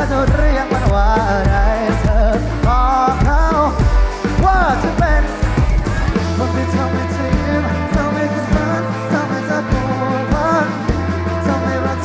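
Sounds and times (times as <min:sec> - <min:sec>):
bass guitar notes: 0:00.0 - 0:12.0
electric guitar: 0:00.0 - 0:12.0
drum hits: 0:00.3 - 0:08.8.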